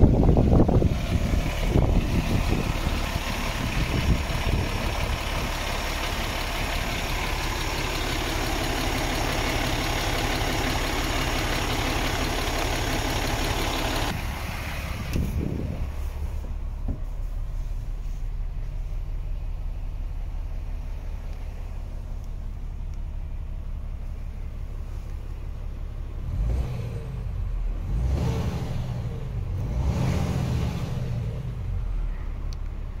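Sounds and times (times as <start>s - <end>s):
truck engine revving: 0.0s - 16.6s, 26.2s - 32.0s
diesel truck engine idling: 0.0s - 28.0s, 30.8s - 33.0s.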